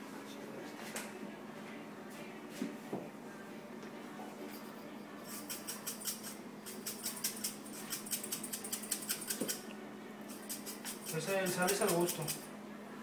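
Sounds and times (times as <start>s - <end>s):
salt shaker rattling: 5.2s - 9.6s, 10.3s - 12.5s.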